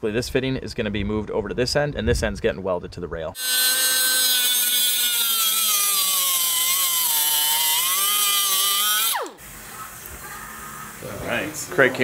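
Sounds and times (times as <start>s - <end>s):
cut-off tool whining through metal: 3.4s - 9.4s.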